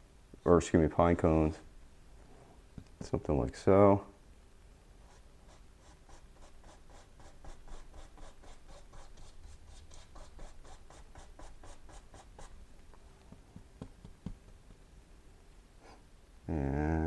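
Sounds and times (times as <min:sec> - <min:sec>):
paintbrush dabbing on canvas: 0:05.0 - 0:12.6.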